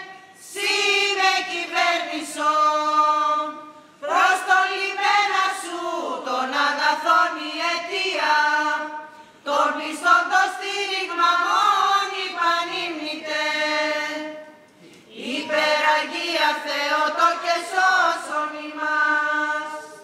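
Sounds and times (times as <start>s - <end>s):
women singing chant: 0.0s - 20.0s.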